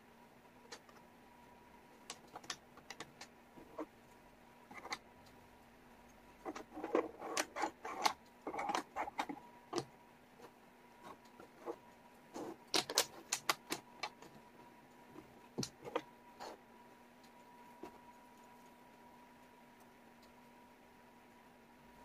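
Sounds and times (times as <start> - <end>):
wooden puzzle pieces clicking: 12.7 - 14.2.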